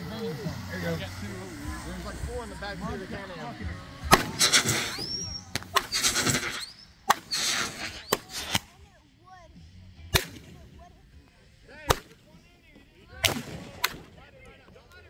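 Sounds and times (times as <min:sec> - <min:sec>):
firework launch bang and hiss: 0:04.0 - 0:08.7
firework shells bursting: 0:04.0 - 0:08.7.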